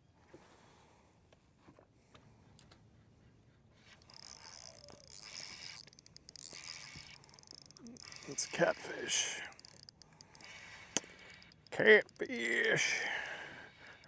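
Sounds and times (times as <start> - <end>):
faint reel clicks: 3.8 - 14.0
fishing reel whirring: 3.8 - 14.0.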